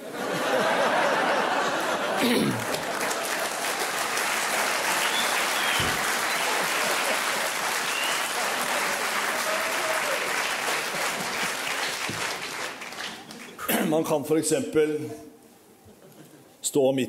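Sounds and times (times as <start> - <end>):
studio audience applauding: 1.4 - 13.6.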